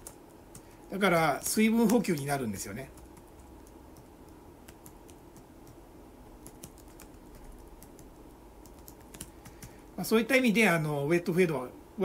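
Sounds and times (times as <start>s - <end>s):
faint keyboard typing clicks: 0.0s - 5.8s, 6.4s - 9.8s.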